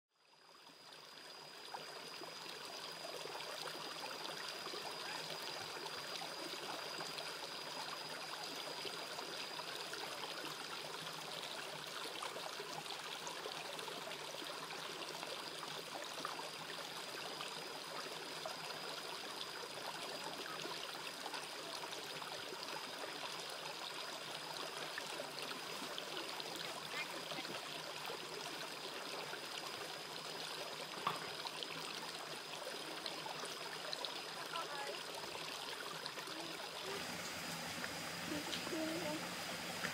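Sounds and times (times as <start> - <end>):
stream flowing over stones: 0.2 - 39.9
thin high tone: 36.8 - 39.9.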